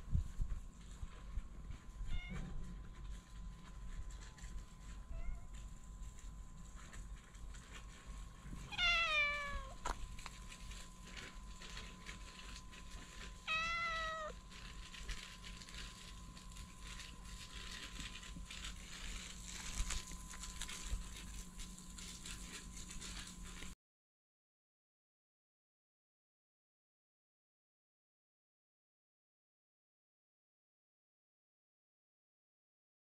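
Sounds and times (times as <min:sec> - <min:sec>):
cat meowing: 0:02.0 - 0:02.5, 0:05.2 - 0:05.6, 0:08.7 - 0:09.9, 0:13.5 - 0:14.4.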